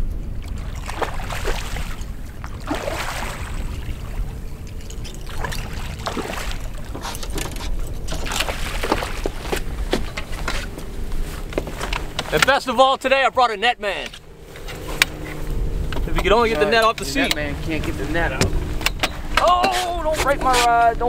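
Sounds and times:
water lapping against boat: 0.0 - 21.0
wind: 0.0 - 21.0
fish thrashing in water: 0.4 - 10.6.

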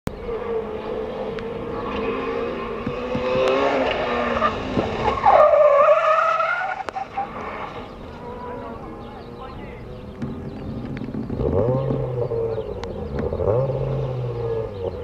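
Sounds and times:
rally car engine revving: 0.1 - 15.0
car skidding through dirt: 0.2 - 9.0.

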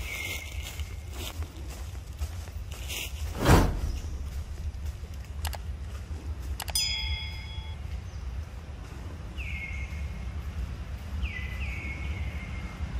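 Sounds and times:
steady low rumble: 1.0 - 12.9
click and ringing chime: 6.6 - 7.8.

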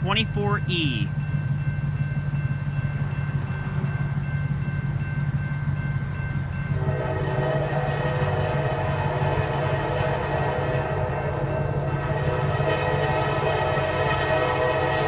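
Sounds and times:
diesel locomotive rumbling: 0.0 - 15.0
locomotive air horn: 6.7 - 15.0.

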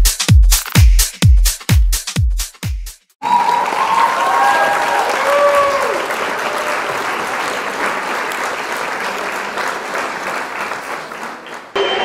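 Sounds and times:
crowd applause: 3.2 - 12.0.

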